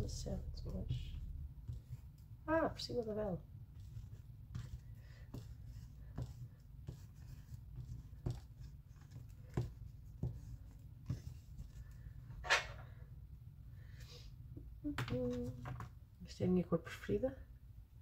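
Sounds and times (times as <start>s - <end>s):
pastel scratching on paper: 3.7s - 12.0s.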